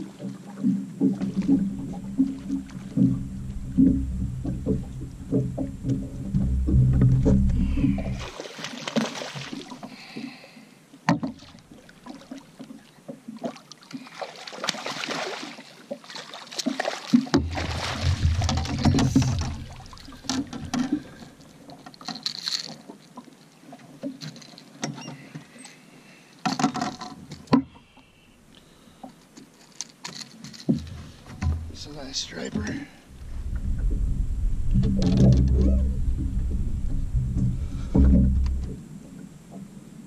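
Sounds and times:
knocks and clicks: 1.0s - 8.2s, 17.4s - 21.0s, 33.1s - 38.8s
fish splashing at surface: 14.0s - 21.5s.

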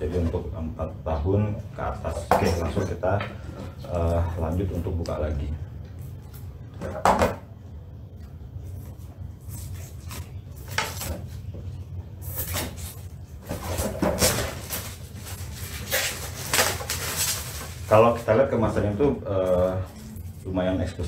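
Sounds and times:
plastic wrapping crinkling: 12.7s - 18.3s.

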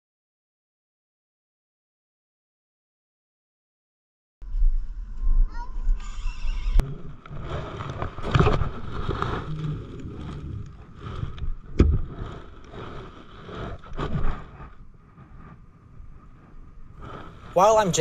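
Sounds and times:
clothing rustle and scraping: 7.1s - 17.4s.

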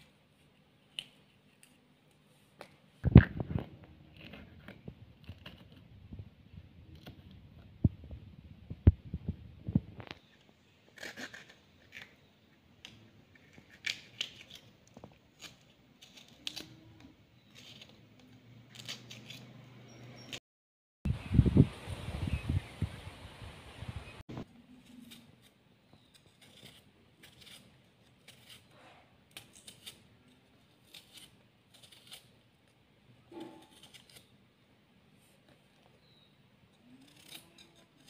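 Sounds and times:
knife slicing pepper: 33.3s - 34.3s, 36.8s - 38.0s.

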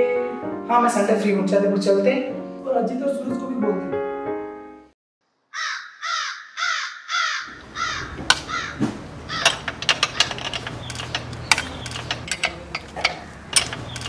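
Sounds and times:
crows cawing: 5.5s - 9.7s
sharp clicks and taps: 8.2s - 14.0s.

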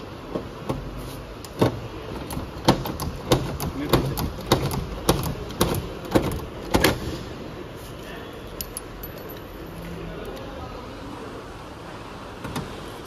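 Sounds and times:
sharp knocks: 1.6s - 7.0s.

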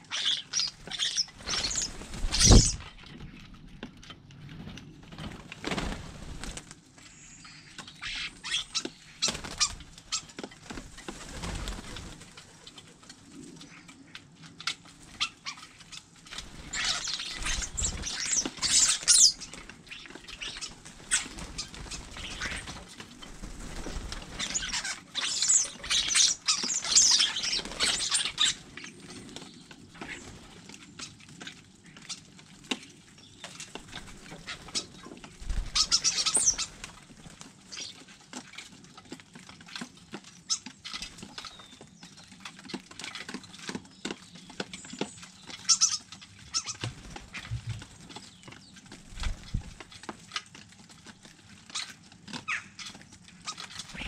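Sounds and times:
starlings harsh chatter: 0.0s - 2.8s, 16.5s - 23.4s, 35.5s - 36.8s
beaks clicking on feeders: 0.1s - 4.9s, 7.6s - 54.0s
wing flutters: 0.1s - 32.7s, 33.4s - 38.7s, 45.6s - 54.0s.

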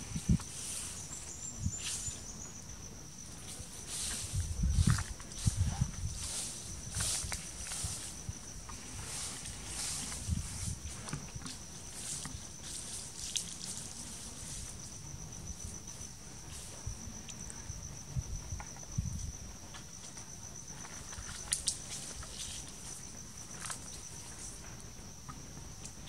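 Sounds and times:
insects trilling: 0.0s - 26.0s
twigs knocking and rustling: 9.4s - 14.6s.

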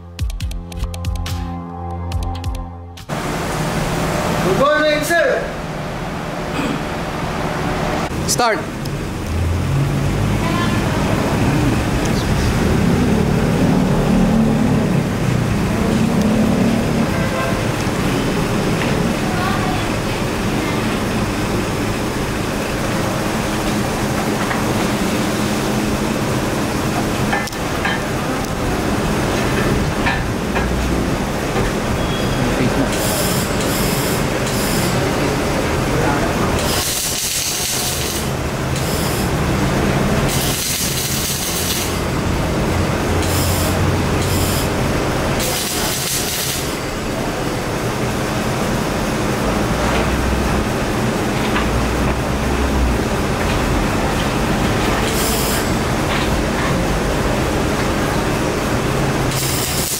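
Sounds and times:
welding machines humming: 10.9s - 59.9s
crackling hiss of arc welding: 36.6s - 39.4s, 40.3s - 42.1s, 43.2s - 46.9s, 55.0s - 55.9s, 59.2s - 59.9s.

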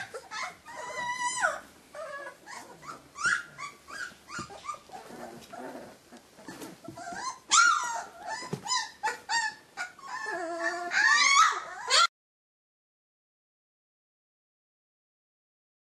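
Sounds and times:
puppies crying: 0.0s - 12.1s.

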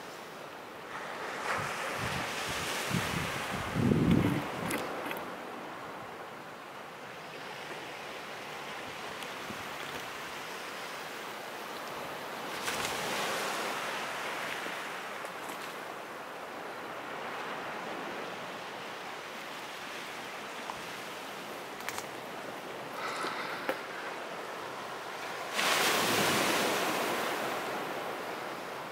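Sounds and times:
ocean waves washing against rocks: 0.9s - 6.0s, 20.0s - 28.9s.

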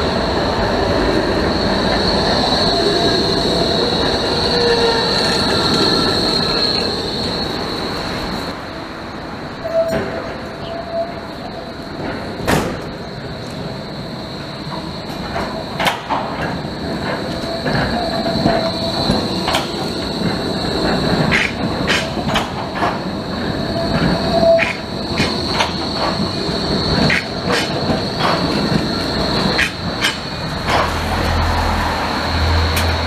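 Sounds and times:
tram wheels squealing: 0.0s - 33.0s
lower wheel squeal: 9.6s - 11.6s, 23.4s - 31.3s
wheels clacking over track joints: 14.7s - 31.8s, 32.5s - 33.0s.

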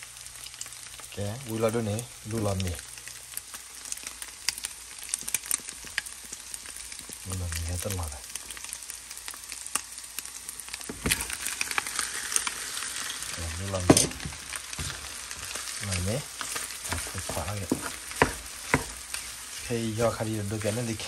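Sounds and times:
food sizzling in pan: 0.0s - 21.0s
wooden spatula scraping: 10.9s - 21.0s.

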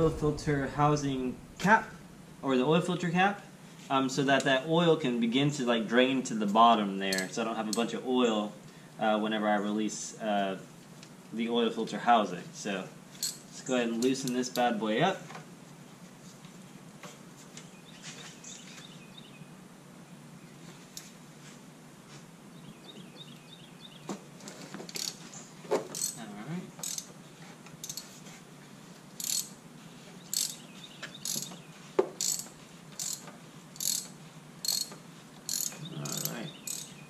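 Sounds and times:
socket ratchet clicking: 26.8s - 27.1s, 27.8s - 28.1s, 29.2s - 29.5s, 30.3s - 30.6s, 32.2s - 36.9s.

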